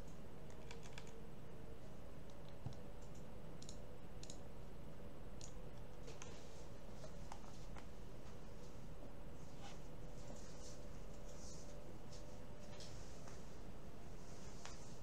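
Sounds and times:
computer mouse clicking: 0.0s - 1.2s, 2.3s - 4.4s
steady background hiss: 0.0s - 15.0s.

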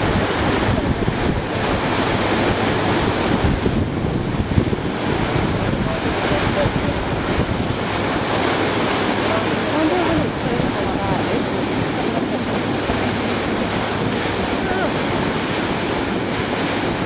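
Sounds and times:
water rushing along boat hull: 0.0s - 17.0s
wind buffeting microphone: 0.0s - 17.0s.

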